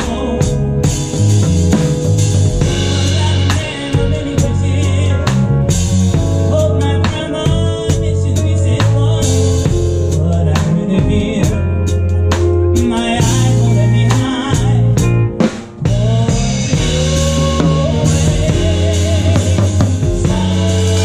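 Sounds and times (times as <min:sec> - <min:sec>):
bass notes: 0:00.0 - 0:21.0
drum kit with cymbals: 0:00.0 - 0:21.0
electric guitar: 0:00.0 - 0:21.0.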